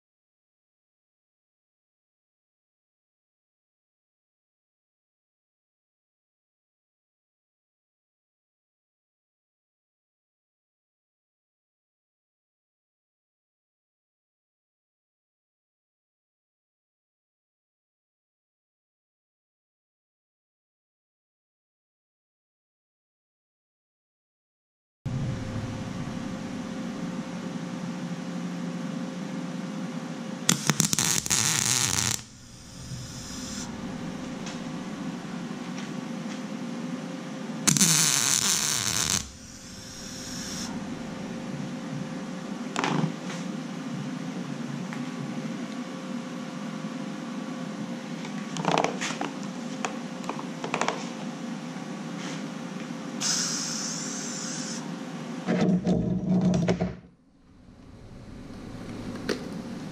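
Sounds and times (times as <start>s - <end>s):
steady welder hum: 25.1s - 43.9s, 53.2s - 54.9s
welding arc crackling: 30.5s - 35.2s, 37.7s - 41.4s, 53.2s - 54.8s.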